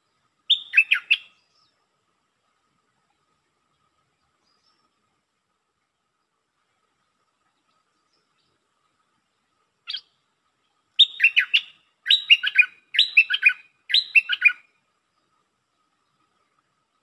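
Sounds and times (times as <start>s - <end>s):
bird singing whistled notes: 0.5s - 1.8s, 9.8s - 10.2s, 11.0s - 14.8s.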